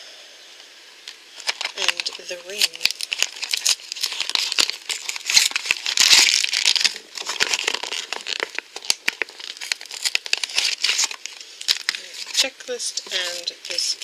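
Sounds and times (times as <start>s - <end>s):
cardboard packaging crinkling: 1.0s - 14.0s
packaging clicks: 1.4s - 12.5s.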